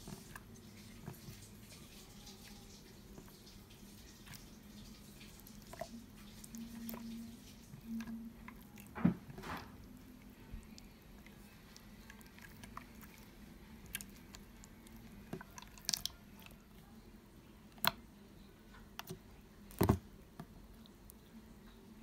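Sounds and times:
slime squelching: 0:02.1 - 0:16.9.

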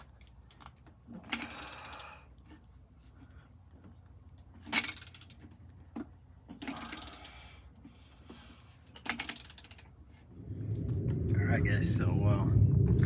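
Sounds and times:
metallic clicking and rattling of tools: 0:00.0 - 0:02.6, 0:03.8 - 0:07.9, 0:08.6 - 0:10.0.

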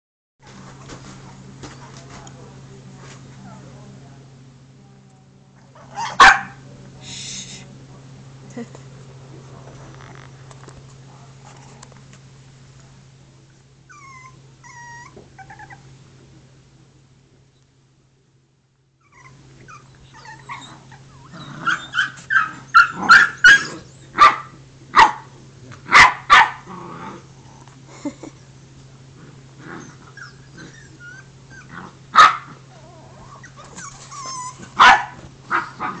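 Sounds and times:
dog barking: 0:05.9 - 0:06.6, 0:21.7 - 0:25.3, 0:25.9 - 0:26.6, 0:32.2 - 0:32.5, 0:34.8 - 0:36.0
puppy whimpering: 0:13.9 - 0:15.8, 0:19.0 - 0:24.0, 0:29.8 - 0:31.8, 0:32.7 - 0:34.8
puppy whining: 0:13.9 - 0:15.9, 0:19.0 - 0:24.1, 0:29.7 - 0:31.8, 0:32.7 - 0:34.8.

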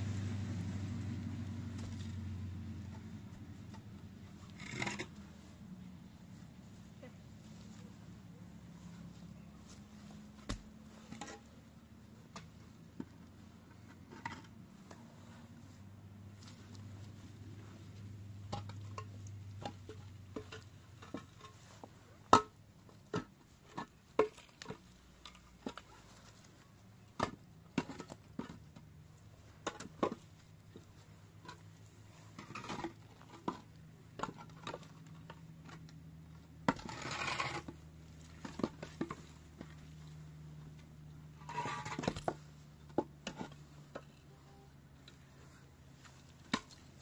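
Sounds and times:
faint low hum: 0:00.0 - 0:47.0
scraping rustle: 0:36.6 - 0:40.2, 0:41.2 - 0:47.0.

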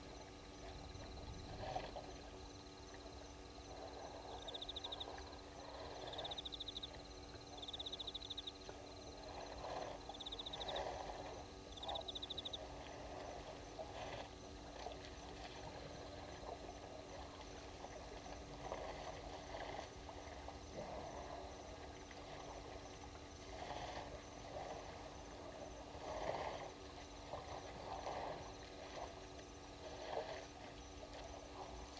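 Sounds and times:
steady high-pitched whine: 0:00.0 - 0:31.9
elephants splashing in water: 0:12.6 - 0:22.9, 0:23.5 - 0:31.8.

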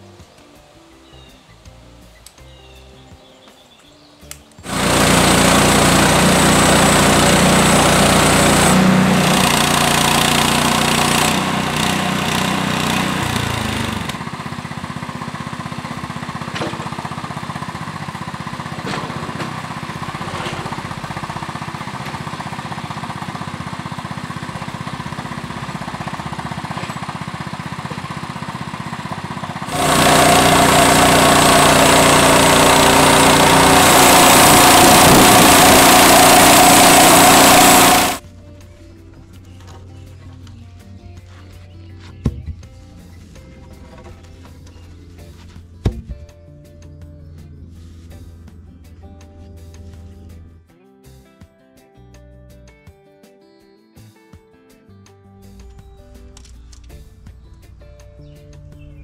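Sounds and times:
band saw blade cutting wood: 0:04.6 - 0:14.3, 0:16.0 - 0:38.2
small gas engine running: 0:04.6 - 0:38.8.

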